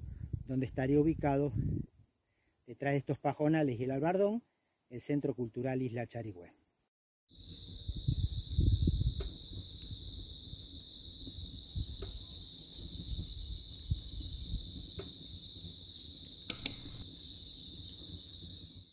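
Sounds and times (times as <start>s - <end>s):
insects trilling: 5.6s - 18.9s
sharp clicks: 16.5s - 17.0s.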